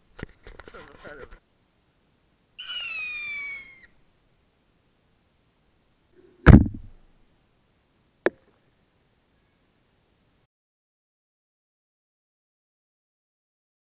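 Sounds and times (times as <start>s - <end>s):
rocket whistle falling in pitch: 2.6s - 3.9s.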